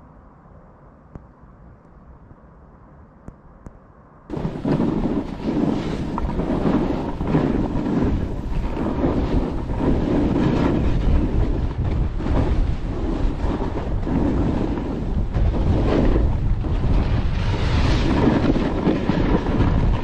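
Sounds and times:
skis carving hard snow: 0:04.3 - 0:20.0
wind buffeting microphone: 0:04.3 - 0:20.0.

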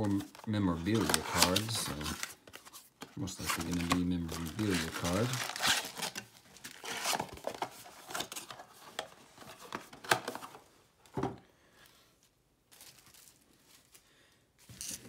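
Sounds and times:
cardboard rustling and scraping: 0:00.0 - 0:10.6.

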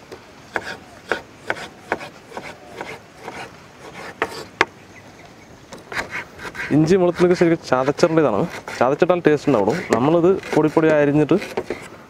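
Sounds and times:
knife chopping on wooden board: 0:00.5 - 0:04.5.

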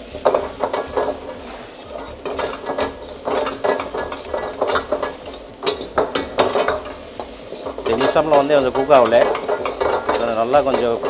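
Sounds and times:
metal ladle scraping a wok: 0:00.0 - 0:11.0.

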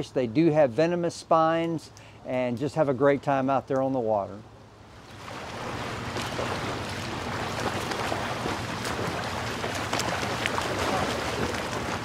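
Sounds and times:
low steady hum: 0:00.0 - 0:12.0
splashing water: 0:05.0 - 0:12.0.

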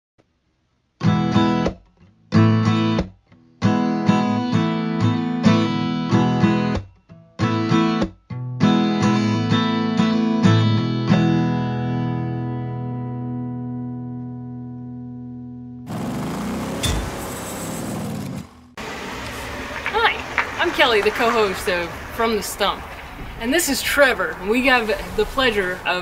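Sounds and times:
guitar strumming chords: 0:02.3 - 0:17.2.

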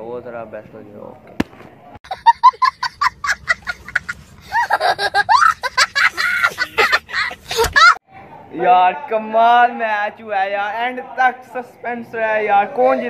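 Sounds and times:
young boy laughing: 0:02.1 - 0:08.0.

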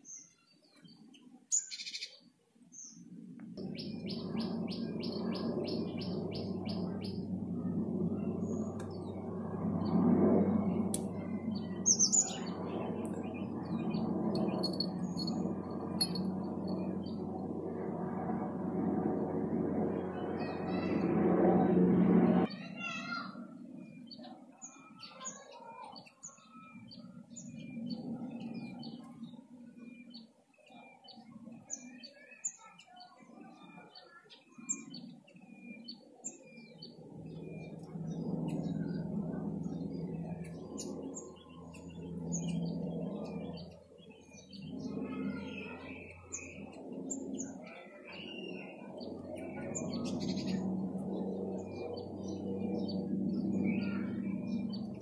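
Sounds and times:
small birds chirping: 0:00.0 - 0:17.8, 0:22.4 - 0:55.0
low drone: 0:02.8 - 0:22.5, 0:34.8 - 0:55.0.

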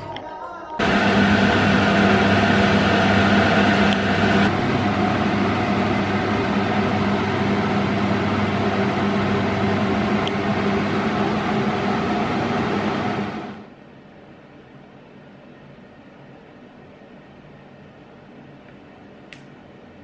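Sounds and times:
electric fan motor whirring: 0:00.8 - 0:13.8.

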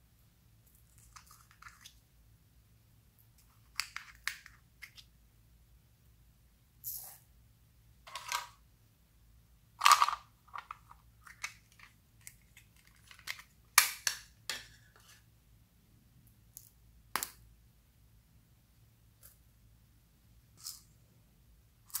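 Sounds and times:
plastic containers snapping open and shut: 0:09.8 - 0:14.7.

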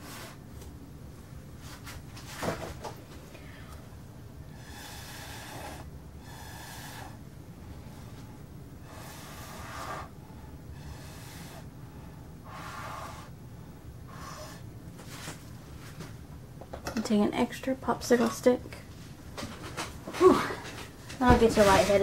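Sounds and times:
person blowing out hard breaths: 0:04.4 - 0:07.2, 0:08.8 - 0:10.2, 0:10.8 - 0:11.7, 0:12.4 - 0:13.3.

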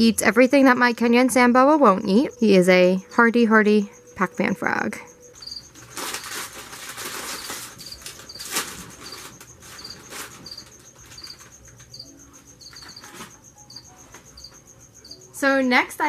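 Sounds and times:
crickets chirping: 0:00.0 - 0:16.0
chip bag crinkling: 0:05.8 - 0:11.5.

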